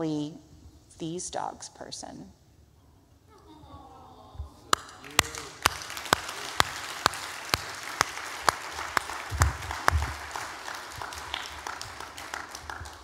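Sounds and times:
congregation applauding: 4.7 - 13.0.

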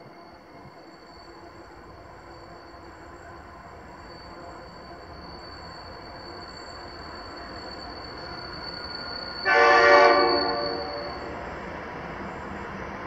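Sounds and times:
approaching train rumble: 0.0 - 13.0
locomotive air horn blast: 9.4 - 11.2.

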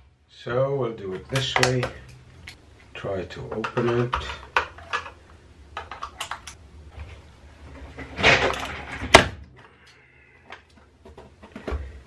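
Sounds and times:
plastic grinding crack: 3.4 - 6.6, 7.9 - 9.8.

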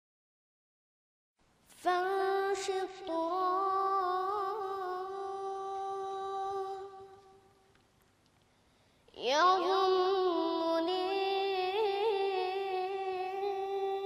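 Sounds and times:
person singing unaccompanied: 1.7 - 7.6, 9.1 - 14.0.

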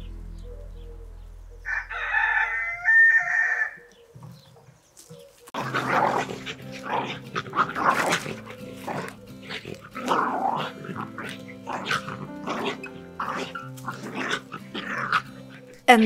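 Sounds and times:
background music with held notes: 0.0 - 2.2, 5.6 - 16.0
small dogs growling: 5.5 - 15.8.

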